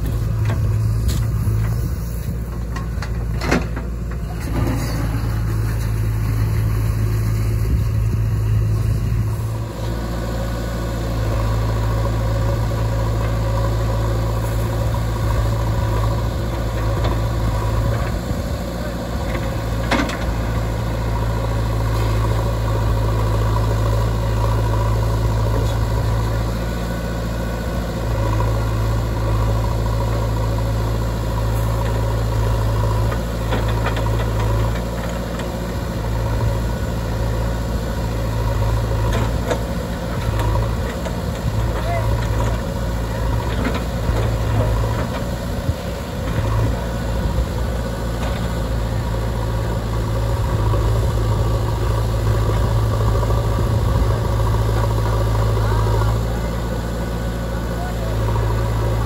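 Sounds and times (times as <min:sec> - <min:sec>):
diesel engine under load: 0:00.0 - 0:59.0.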